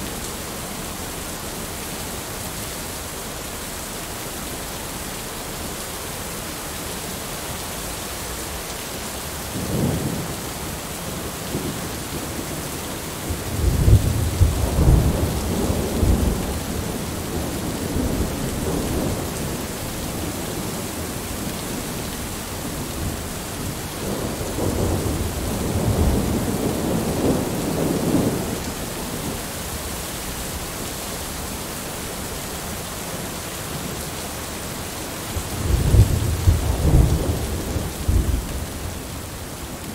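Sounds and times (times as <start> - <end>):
heavy rain falling: 0.0 - 39.9
thunder rumbling: 13.2 - 29.4, 35.4 - 39.9.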